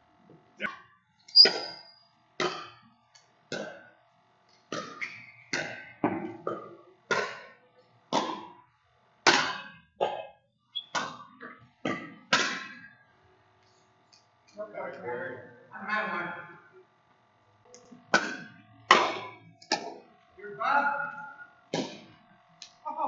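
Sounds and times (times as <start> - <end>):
ball bouncing on hard floor: 1.3 - 1.8, 2.4 - 2.9, 4.6 - 8.6, 9.3 - 12.9, 18.1 - 20.1, 21.7 - 22.2.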